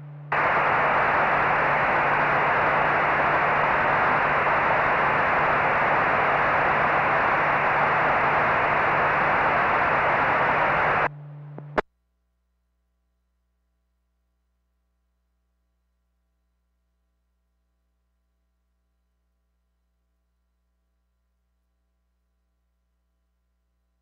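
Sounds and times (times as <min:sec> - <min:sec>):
radio static hiss: 0:00.3 - 0:11.8.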